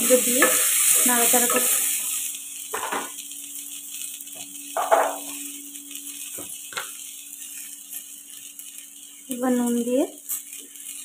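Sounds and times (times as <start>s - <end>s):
faint sizzle: 0.0s - 11.0s
kitchen utensils knocking: 4.8s - 5.3s.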